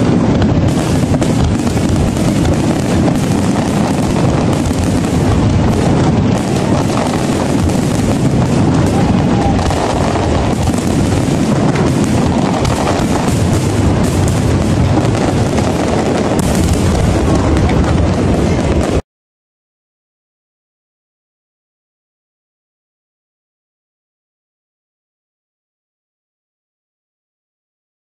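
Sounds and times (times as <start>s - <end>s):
fireworks bangs and crackling: 0.0s - 19.0s.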